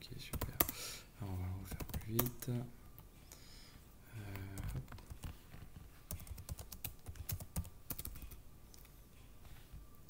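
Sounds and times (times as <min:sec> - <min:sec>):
typing on computer keyboard: 0:00.3 - 0:00.8, 0:01.7 - 0:02.4, 0:04.3 - 0:05.4, 0:06.1 - 0:08.4.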